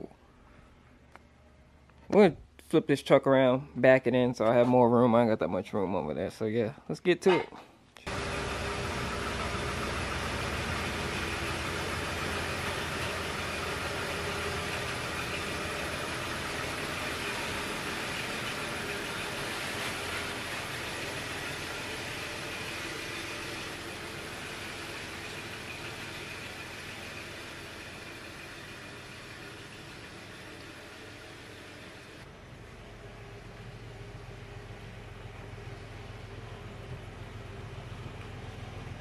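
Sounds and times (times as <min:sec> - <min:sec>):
pickup truck engine driving off: 0:08.1 - 0:39.0.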